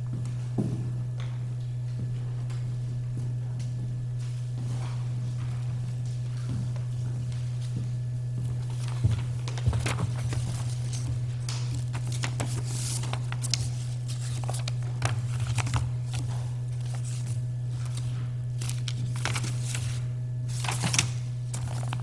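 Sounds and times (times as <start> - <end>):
handling rustling and clicks: 20.6 - 22.0.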